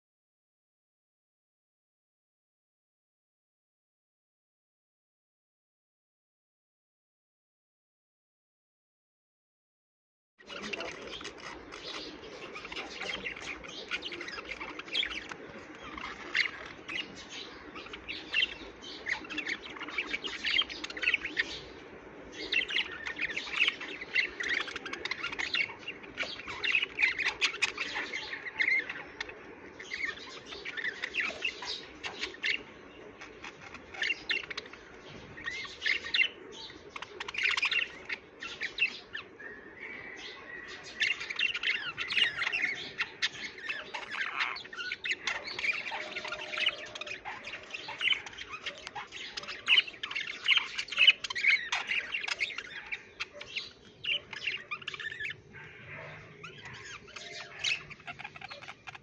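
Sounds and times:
budgerigars chirping and warbling: 10.4 - 59.0.

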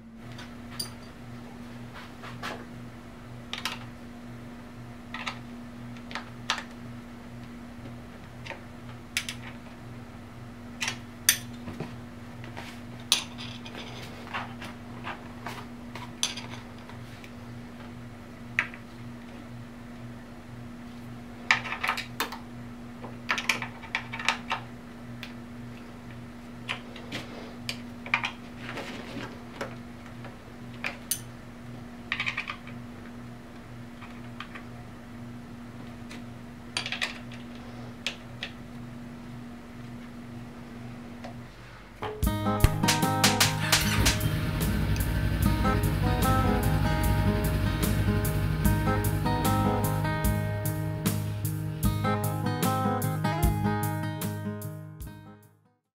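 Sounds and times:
steady low hum: 0.0 - 53.9
metal tools clinking on bracket: 0.8 - 1.2.

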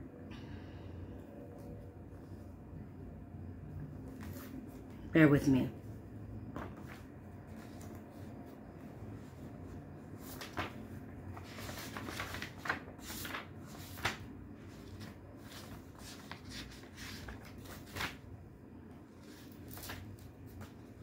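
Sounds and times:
paper pages rustling: 4.0 - 5.0, 6.5 - 18.4, 19.0 - 21.0
paper crackling: 6.5 - 18.4, 19.1 - 21.0.

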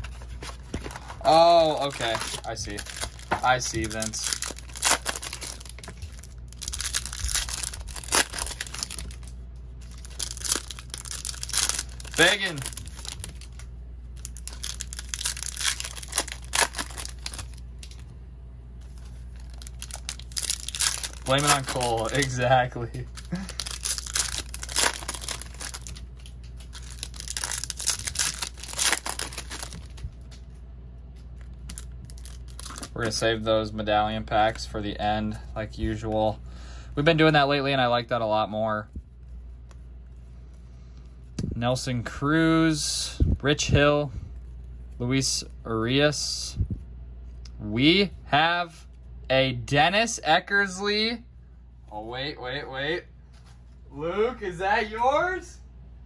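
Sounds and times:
wrappers crinkling: 0.0 - 18.0, 18.9 - 30.4, 31.3 - 33.4
card packs being torn open: 0.7 - 18.0, 19.3 - 30.1, 31.5 - 33.2.

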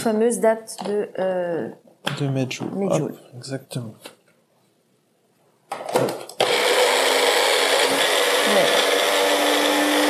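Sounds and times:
kitchen blender running: 6.3 - 10.0.

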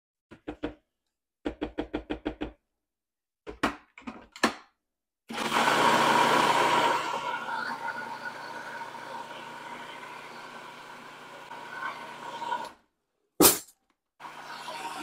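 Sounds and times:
food processor motor running: 5.3 - 12.7, 14.2 - 15.0.

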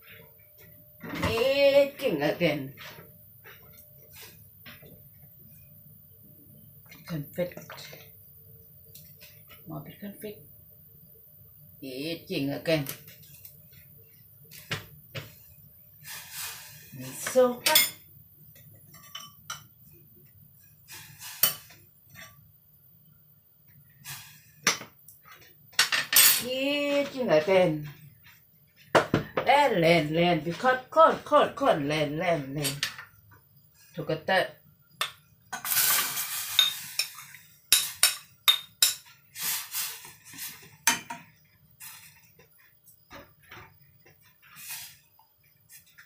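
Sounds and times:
tableware clinking: 17.3 - 18.0, 18.9 - 19.7, 25.8 - 26.5, 35.0 - 39.1, 40.8 - 41.3
spoon clinking against a saucepan: 18.9 - 19.7, 36.6 - 39.1
spoon scraping food into a pan: 20.9 - 22.5, 35.5 - 46.0.

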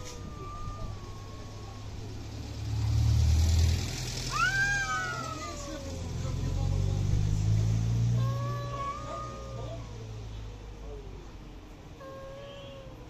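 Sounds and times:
cats yowling: 0.0 - 2.5, 4.3 - 6.6, 8.1 - 11.3, 11.9 - 13.0
passing vehicle rumbling: 0.0 - 12.0.

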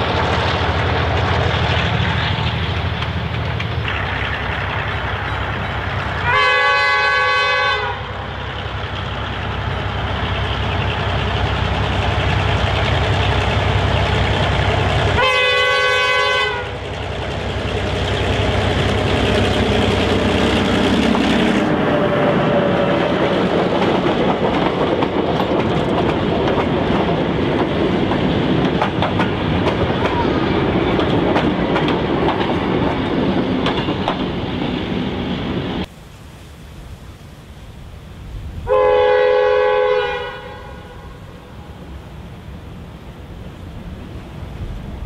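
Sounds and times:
diesel locomotive engine: 0.0 - 45.0
multi-tone train horn: 6.2 - 8.4, 15.2 - 16.9, 38.7 - 41.8
wheels clattering over track: 22.9 - 34.4.

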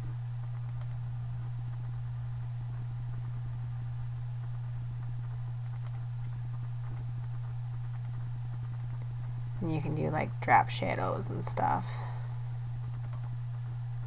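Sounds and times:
steady low hum: 0.0 - 14.0
computer mouse clicks: 0.5 - 1.0, 5.6 - 7.1, 7.8 - 9.1, 12.8 - 13.4.

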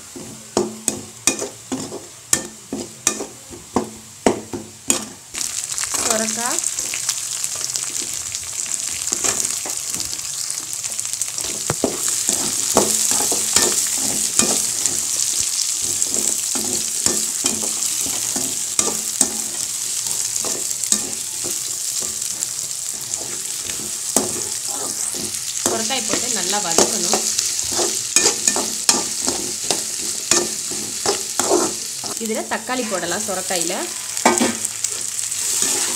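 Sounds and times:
vegetables sizzling in hot oil: 0.0 - 35.9
metal spatula scraping a wok: 0.2 - 3.4, 11.4 - 34.5, 35.4 - 35.9.

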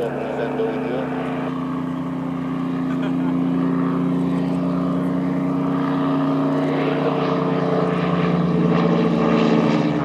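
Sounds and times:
propeller plane flying past: 0.0 - 10.0.

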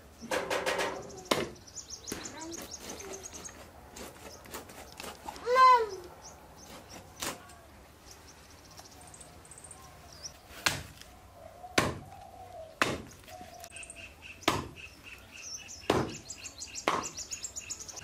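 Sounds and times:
birds chirping: 0.0 - 18.0
knife chopping on a block: 11.8 - 12.1, 12.8 - 13.1, 14.5 - 14.8, 15.9 - 16.2, 16.9 - 17.1.

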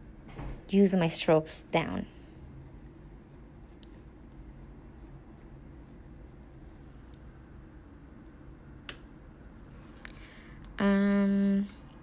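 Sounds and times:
pencil scratching on card: 2.6 - 6.4.

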